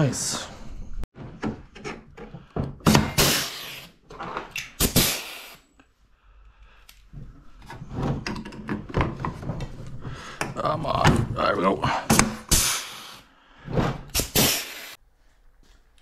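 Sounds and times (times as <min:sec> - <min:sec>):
pneumatic rivet gun firing: 0:02.8 - 0:03.9, 0:04.7 - 0:05.6, 0:14.1 - 0:15.0
compressed air hiss: 0:03.1 - 0:04.0, 0:04.8 - 0:05.7, 0:12.5 - 0:13.3, 0:14.1 - 0:15.0.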